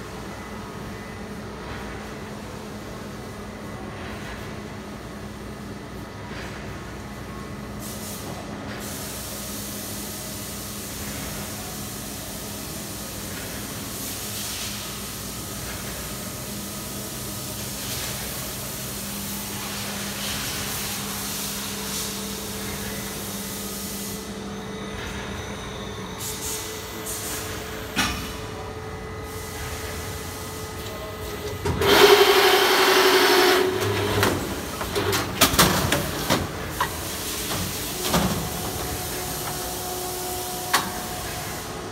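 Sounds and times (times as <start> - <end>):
film winder machine humming: 31.8 - 34.6.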